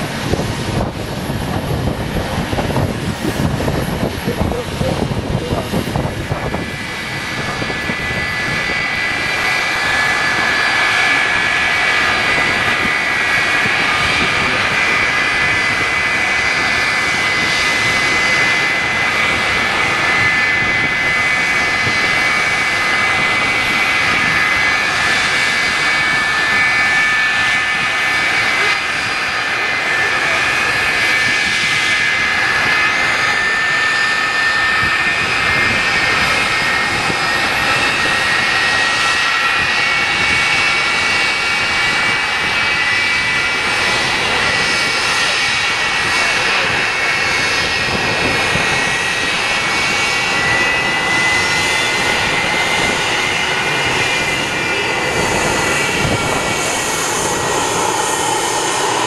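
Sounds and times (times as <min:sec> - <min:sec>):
jet engines idling whine: 0:00.0 - 0:59.0.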